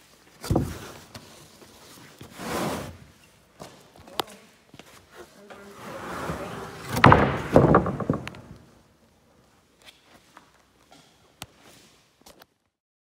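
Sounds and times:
wooden boards scraping and rattling: 0:00.5 - 0:01.0, 0:05.5 - 0:08.8.

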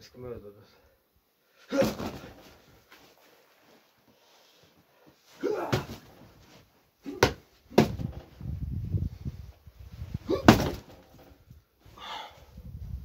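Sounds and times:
punches thudding on punching bag: 0:01.8 - 0:02.4, 0:05.5 - 0:06.2, 0:07.1 - 0:08.2, 0:10.3 - 0:11.0.

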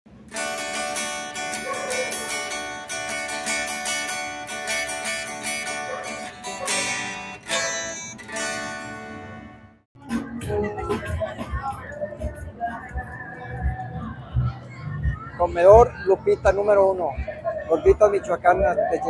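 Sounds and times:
strummed and plucked guitar: 0:00.1 - 0:13.0.

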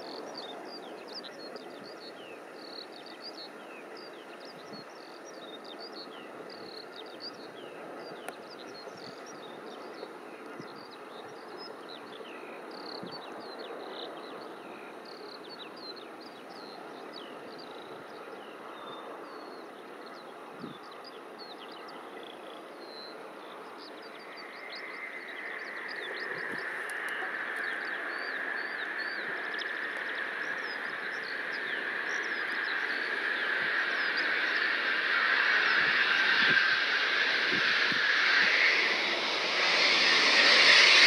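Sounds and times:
distant jet engine rumble: 0:23.5 - 0:41.0.

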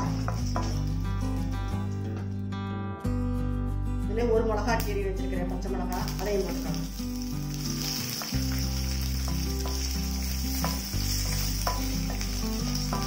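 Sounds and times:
spices sizzling in oil: 0:00.0 - 0:02.2, 0:05.7 - 0:13.0.

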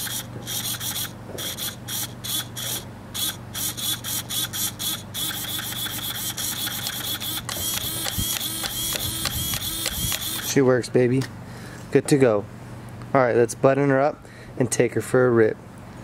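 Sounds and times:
servo whirring: 0:00.0 - 0:10.6.

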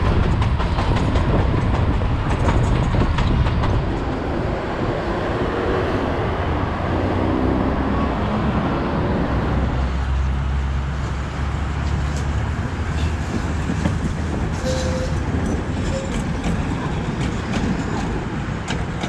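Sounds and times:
tram wheels clicking on track: 0:00.0 - 0:04.8, 0:10.9 - 0:19.0
tram rumbling past: 0:00.0 - 0:19.0.

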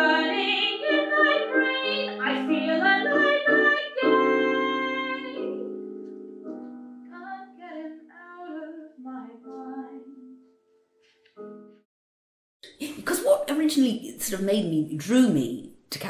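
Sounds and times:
piano: 0:00.0 - 0:11.9.

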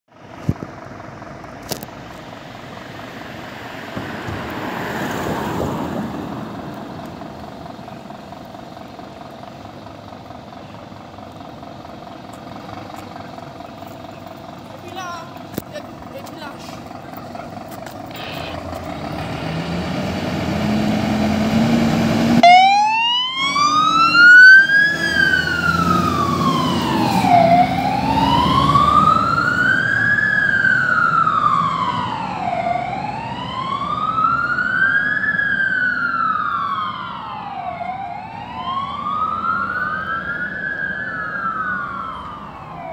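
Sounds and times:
diesel engine pulling away: 0:00.1 - 0:42.9
siren wailing up and down: 0:22.2 - 0:42.9.

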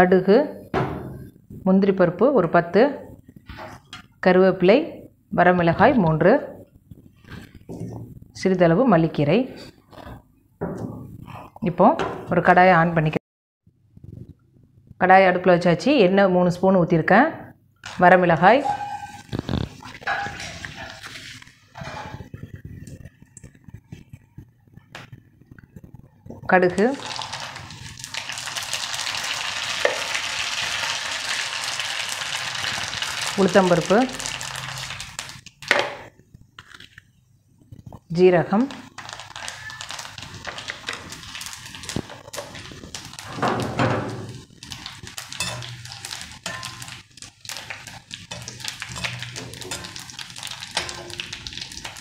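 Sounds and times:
spoon scraping pan: 0:17.9 - 0:22.5, 0:44.2 - 0:52.0
seeds sizzling in hot oil: 0:26.8 - 0:35.7, 0:38.6 - 0:52.0.

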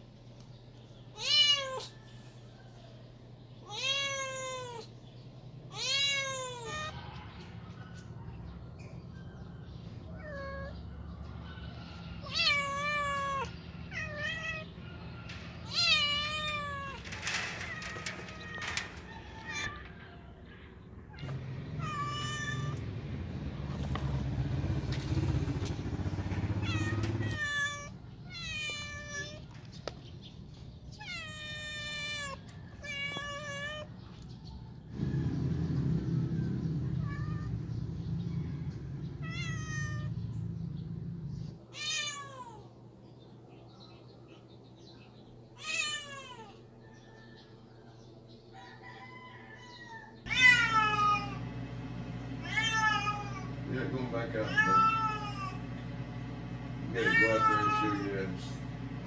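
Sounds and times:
cats meowing: 0:01.1 - 0:02.0, 0:03.6 - 0:05.0, 0:05.6 - 0:07.0, 0:10.1 - 0:10.8, 0:12.2 - 0:14.8, 0:15.6 - 0:19.9, 0:21.1 - 0:22.9, 0:26.6 - 0:29.6, 0:30.9 - 0:34.2, 0:36.9 - 0:37.7, 0:39.0 - 0:40.8, 0:41.7 - 0:42.8, 0:45.6 - 0:46.8, 0:49.8 - 0:51.6, 0:52.3 - 0:53.6, 0:54.2 - 0:55.8, 0:56.9 - 0:58.3.

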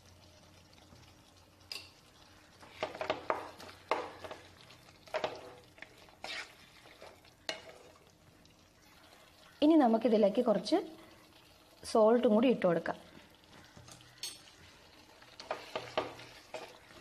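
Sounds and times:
spatula scraping a frying pan: 0:02.7 - 0:08.1, 0:15.2 - 0:17.0.

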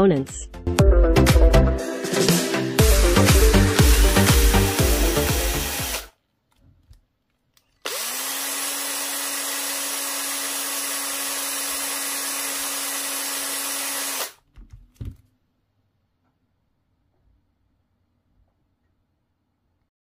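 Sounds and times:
cordless drill motor whining: 0:03.8 - 0:06.1, 0:07.8 - 0:14.4.

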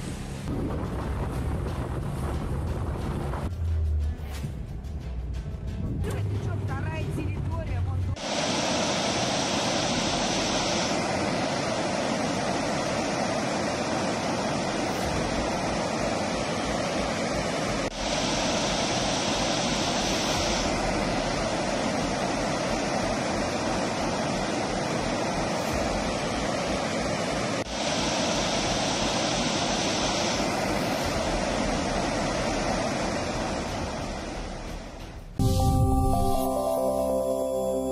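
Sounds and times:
flowing water rushing: 0:08.2 - 0:35.4.

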